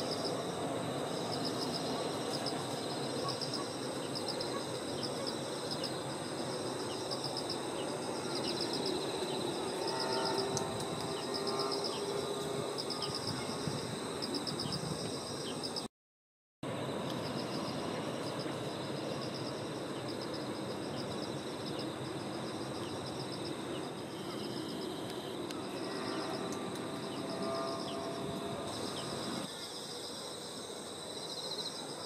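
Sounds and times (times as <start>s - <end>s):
crickets trilling: 0.0s - 15.9s, 16.7s - 32.0s.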